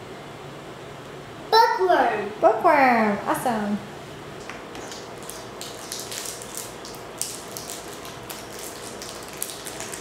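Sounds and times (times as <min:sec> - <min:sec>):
plastic wrapper crinkling: 0:04.8 - 0:10.0.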